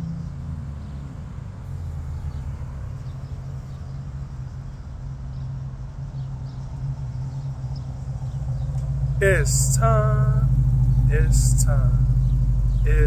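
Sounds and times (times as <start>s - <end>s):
vehicle engine idling: 1.7s - 13.0s
birds chirping: 6.2s - 13.0s.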